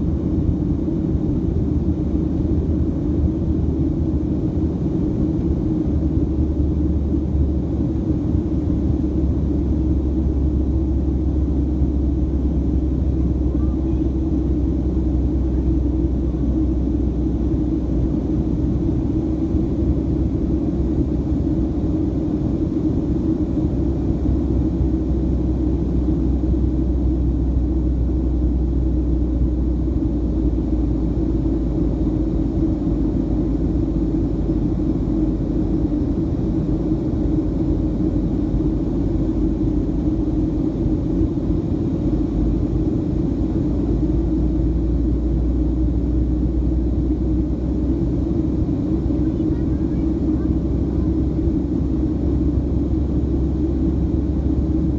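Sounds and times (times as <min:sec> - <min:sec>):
jet engine rumble in cabin: 0:00.0 - 0:54.9.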